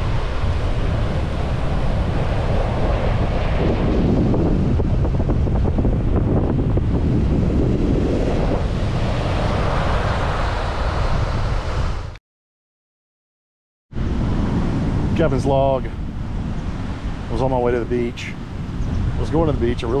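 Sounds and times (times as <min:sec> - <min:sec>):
surf breaking on beach: 0:00.0 - 0:12.1
wind buffeting microphone: 0:00.0 - 0:12.2, 0:13.9 - 0:20.0.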